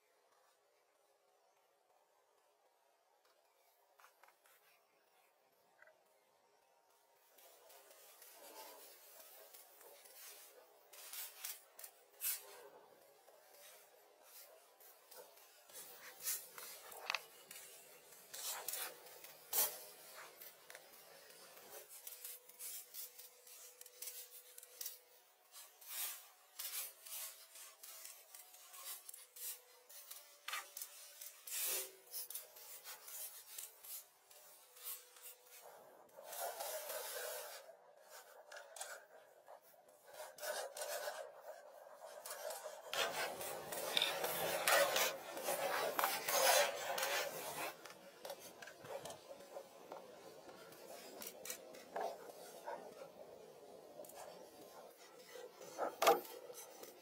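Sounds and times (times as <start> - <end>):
rasping rubbing noise: 25.6 - 57.0.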